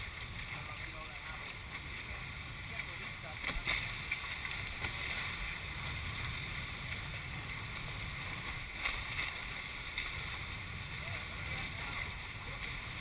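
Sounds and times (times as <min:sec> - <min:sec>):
water rushing past hulls: 0:00.0 - 0:13.0
wind rumbling on microphone: 0:00.0 - 0:13.0.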